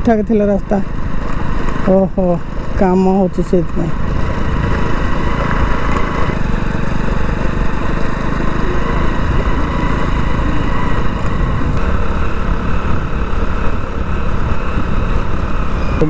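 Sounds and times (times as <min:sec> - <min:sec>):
motorcycle engine running: 0:00.0 - 0:16.0
wind on microphone: 0:08.6 - 0:16.0.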